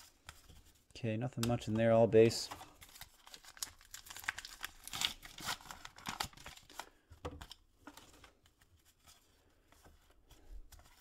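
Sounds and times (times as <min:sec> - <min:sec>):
cards being handled: 0:00.0 - 0:11.0
wrapper tearing and crinkling: 0:02.8 - 0:06.9.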